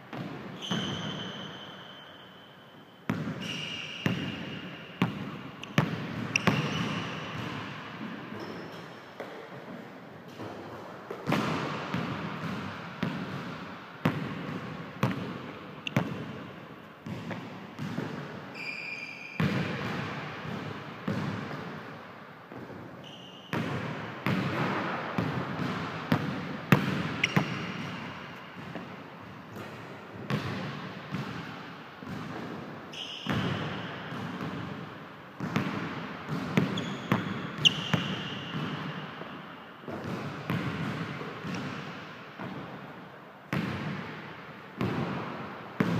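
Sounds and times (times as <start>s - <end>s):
sneaker squeaks: 0.2s - 9.1s, 15.8s - 19.9s, 23.0s - 23.8s, 27.0s - 28.9s, 32.9s - 34.4s, 36.6s - 39.4s
basketball bouncing on wooden floor: 3.1s - 3.5s, 5.0s - 7.7s, 11.1s - 16.4s, 17.0s - 18.3s, 23.5s - 29.0s.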